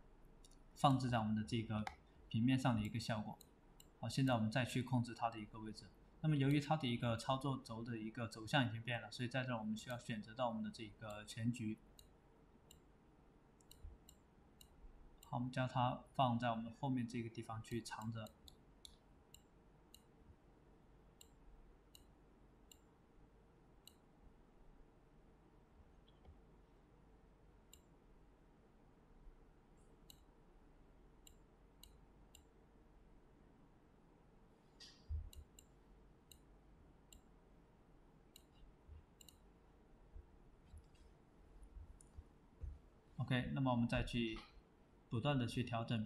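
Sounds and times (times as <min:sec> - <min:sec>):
computer mouse clicks: 0:01.8 - 0:04.0, 0:12.0 - 0:12.9, 0:13.6 - 0:15.3, 0:17.7 - 0:20.1, 0:21.2 - 0:22.9, 0:23.8 - 0:24.1, 0:27.7 - 0:27.9, 0:29.8 - 0:30.3, 0:31.2 - 0:32.6, 0:34.8 - 0:36.5, 0:37.1 - 0:37.3, 0:38.3 - 0:39.5.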